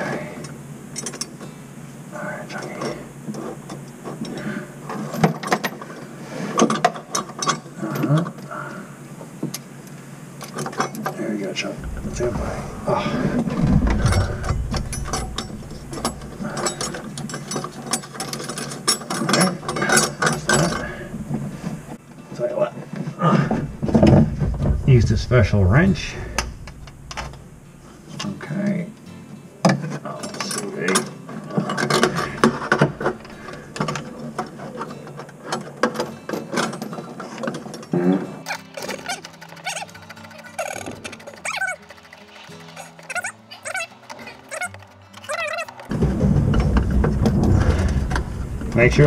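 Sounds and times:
steady pitched tone: 0:11.8 - 0:17.2, 0:23.6 - 0:28.1
wrench clicking and rattling: 0:38.5 - 0:45.9.

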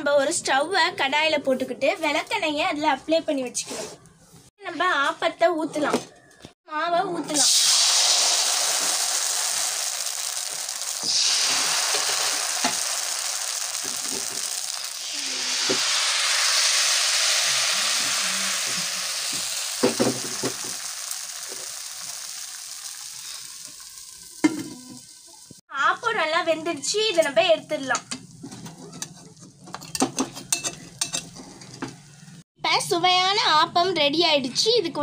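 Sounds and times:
batter sizzling in oiled pan: 0:07.3 - 0:25.6.

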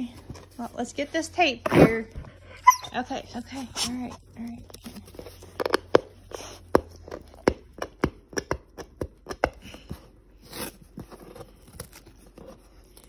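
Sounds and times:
tape and cardboard crackling: 0:03.0 - 0:13.0.

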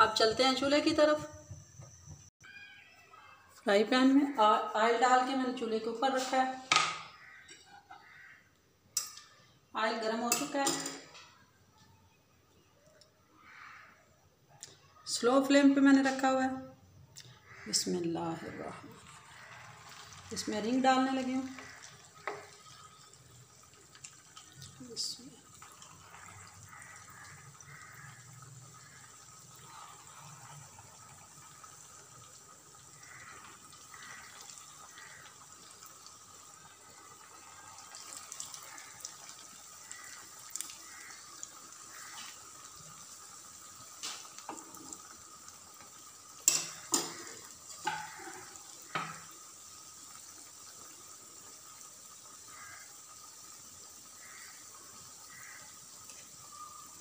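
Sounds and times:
oil sizzling and bubbling: 0:00.0 - 0:11.8, 0:12.5 - 0:57.0.

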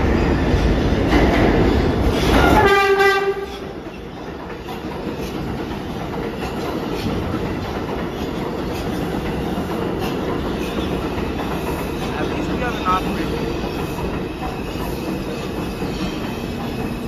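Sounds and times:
train rumbling on tracks: 0:00.0 - 0:17.0
subway train horn blast: 0:02.3 - 0:03.6.

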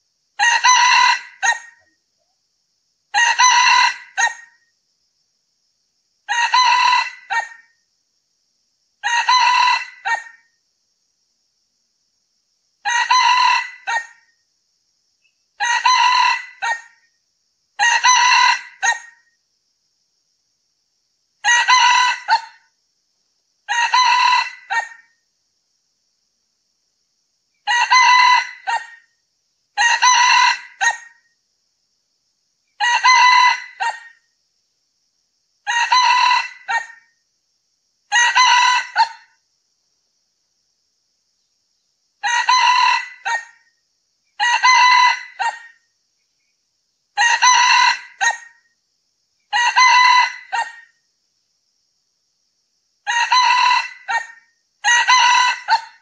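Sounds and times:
rooster crowing: 0:00.4 - 0:01.8, 0:03.1 - 0:04.5, 0:06.3 - 0:07.6, 0:09.0 - 0:10.4, 0:12.8 - 0:14.2, 0:15.6 - 0:17.0, 0:17.8 - 0:19.2, 0:21.4 - 0:22.6, 0:23.7 - 0:25.1, 0:27.6 - 0:29.1, 0:29.8 - 0:31.2, 0:32.8 - 0:34.2, 0:35.7 - 0:37.0, 0:38.1 - 0:39.3, 0:42.2 - 0:43.6, 0:44.4 - 0:45.8, 0:47.2 - 0:48.6, 0:49.5 - 0:50.9, 0:53.0 - 0:56.0.

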